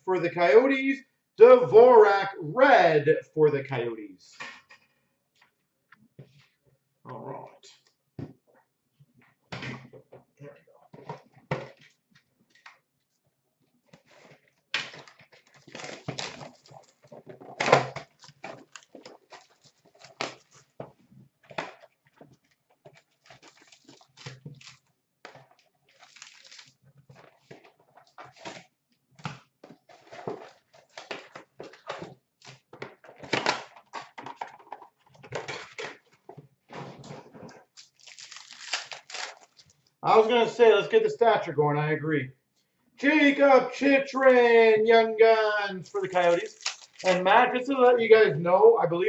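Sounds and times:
cardboard and packaging crinkling: 14.0s - 28.7s, 29.7s - 36.5s, 37.4s - 40.4s, 45.9s - 47.4s.

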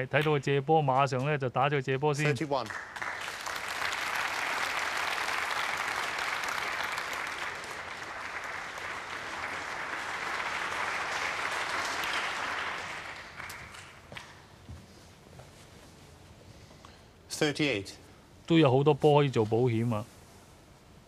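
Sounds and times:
audience clapping: 2.2s - 14.4s.

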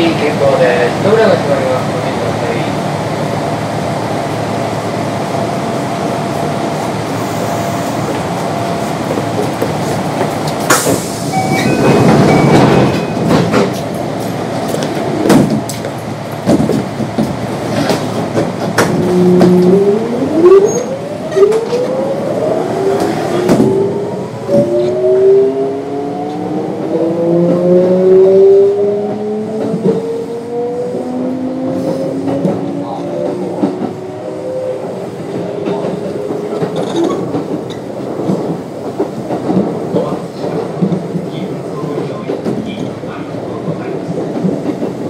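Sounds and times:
train doors closing: 1.4s - 28.4s, 29.0s - 45.0s
train equipment hum: 2.9s - 41.6s.

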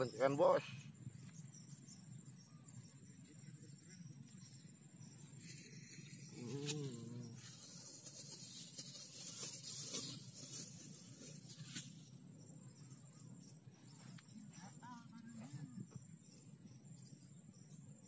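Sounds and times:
high insect tone: 0.0s - 18.0s
low voiced hum: 6.1s - 8.0s
plastic bag rustling: 7.3s - 12.0s.

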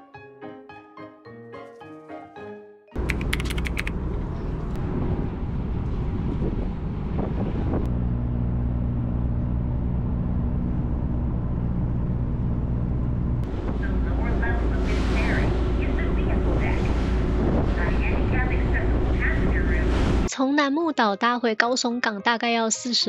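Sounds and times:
metallic clicks rattling: 3.0s - 3.9s
ship engine droning: 3.0s - 20.3s.

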